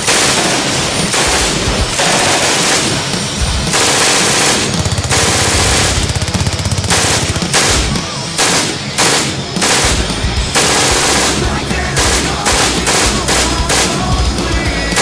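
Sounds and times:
machine-gun fire: 0:00.0 - 0:15.0
music: 0:00.0 - 0:15.0.

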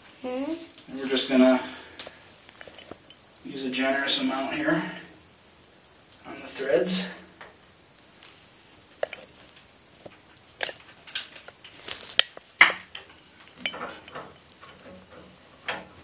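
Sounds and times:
clinks of brass pipe fittings: 0:12.9 - 0:15.8.

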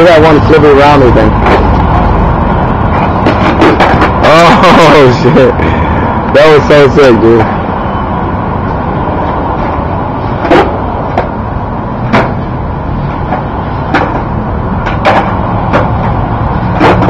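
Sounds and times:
steady rushing noise: 0:00.0 - 0:17.0
skateboard clacking on concrete: 0:02.9 - 0:04.5, 0:10.4 - 0:11.4, 0:12.0 - 0:12.4, 0:13.2 - 0:17.0.

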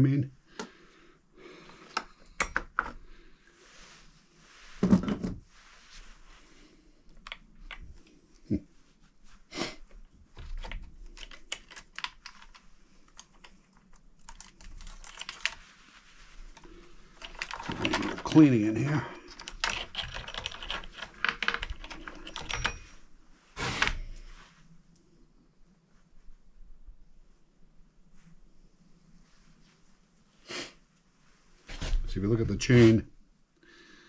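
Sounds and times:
metallic clicks and rattles: 0:17.2 - 0:18.5, 0:19.3 - 0:23.0.

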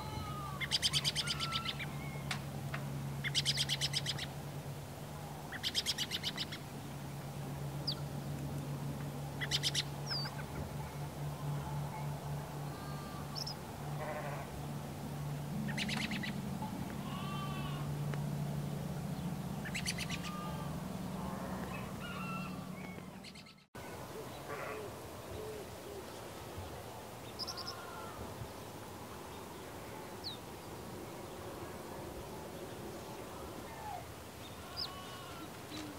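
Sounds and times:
steady low hum: 0:00.0 - 0:35.9
birds chirping: 0:00.3 - 0:02.4, 0:09.0 - 0:14.8, 0:15.5 - 0:17.9, 0:18.6 - 0:24.6, 0:25.3 - 0:31.6, 0:32.2 - 0:35.9.

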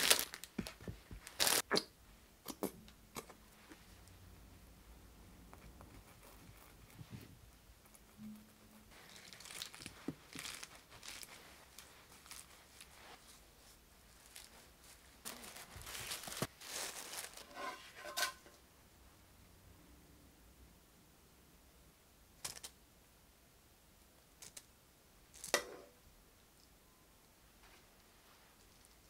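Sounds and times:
lettuce leaves crinkling: 0:00.0 - 0:01.6, 0:08.9 - 0:13.4, 0:14.1 - 0:18.3
plastic cling wrap rustling: 0:00.0 - 0:01.7, 0:08.9 - 0:18.5.

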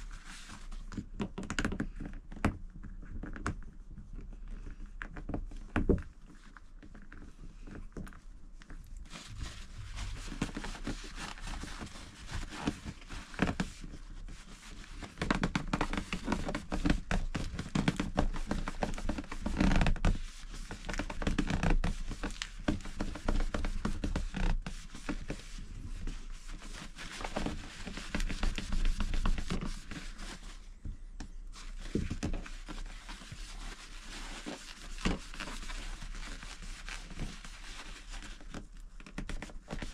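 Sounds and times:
tissue wiping window trim: 0:09.0 - 0:30.8, 0:31.5 - 0:38.7.

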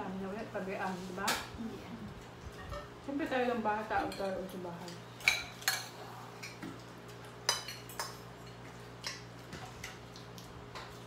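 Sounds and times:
cutlery clinking on plates: 0:07.4 - 0:09.3.

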